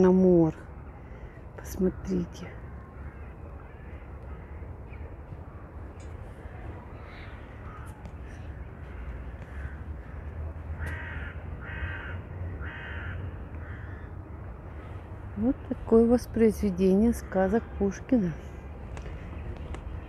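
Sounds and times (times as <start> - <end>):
crows cawing: 2.8 - 4.7, 7.1 - 14.3.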